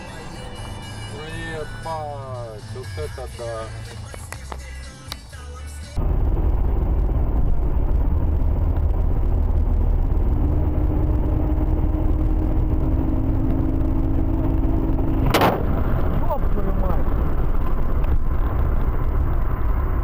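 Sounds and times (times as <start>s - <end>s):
car road and engine rumble: 0.0s - 20.0s
sudden loud bang: 15.2s - 16.2s.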